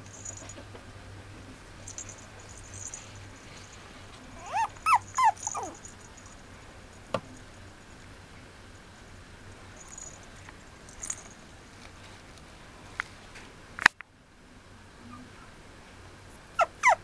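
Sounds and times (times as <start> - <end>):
puppy yipping and whining: 4.3 - 6.3, 16.3 - 17.0.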